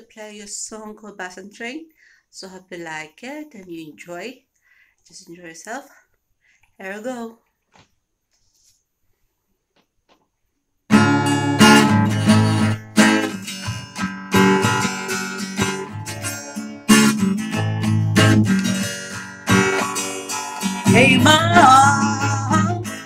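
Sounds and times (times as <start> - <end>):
acoustic guitar strumming: 10.9 - 23.0.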